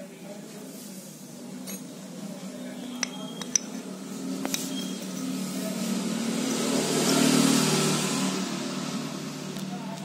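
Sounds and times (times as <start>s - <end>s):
motor vehicle passing by: 3.8s - 10.0s.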